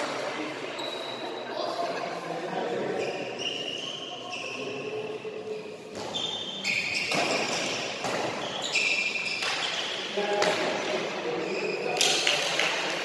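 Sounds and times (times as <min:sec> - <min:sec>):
shoes squealing on floor: 0:02.9 - 0:05.3, 0:06.0 - 0:10.2, 0:11.4 - 0:12.0
rackets striking shuttlecock: 0:07.0 - 0:08.5.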